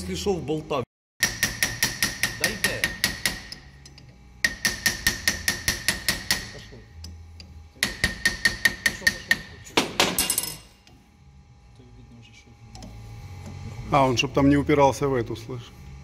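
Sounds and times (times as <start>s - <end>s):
hammer tapping on steel: 1.2s - 11.0s.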